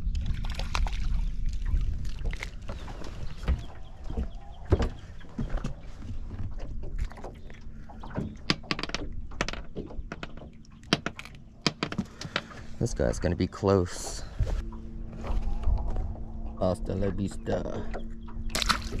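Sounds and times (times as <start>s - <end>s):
low rumble: 0.0s - 19.0s
sharp knocks and clicks: 6.4s - 12.5s.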